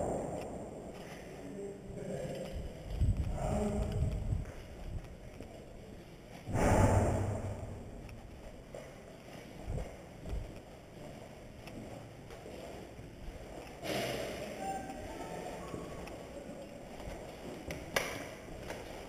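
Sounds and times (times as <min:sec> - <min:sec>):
rush of rubbing noise: 0:06.5 - 0:08.1
clothing and gear rustling: 0:07.8 - 0:14.4.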